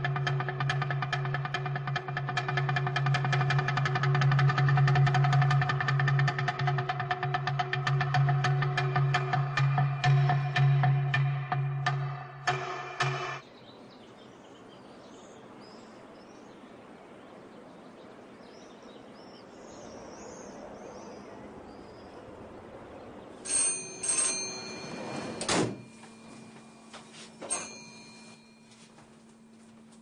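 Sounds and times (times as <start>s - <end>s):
birds chirping faintly: 13.4s - 24.8s
loud ringing tones: 23.5s - 30.0s.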